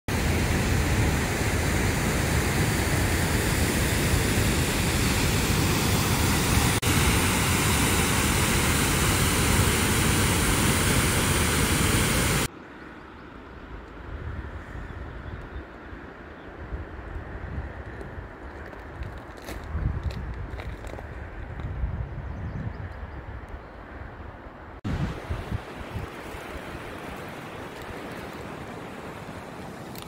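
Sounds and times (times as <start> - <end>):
waterfall roaring: 0.1 - 12.5, 24.9 - 30.0.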